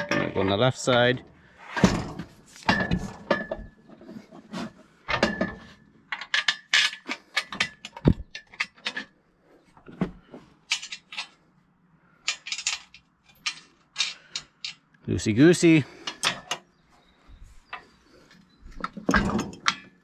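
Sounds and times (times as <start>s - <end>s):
metal parts clinking and clattering: 1.8s - 3.9s, 5.1s - 9.2s, 10.6s - 11.4s, 12.2s - 15.0s, 16.0s - 16.6s, 18.7s - 20.0s.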